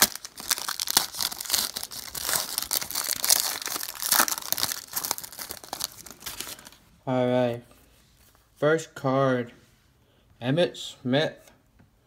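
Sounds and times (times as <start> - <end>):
wrapper tearing and crinkling: 0.0 - 6.8.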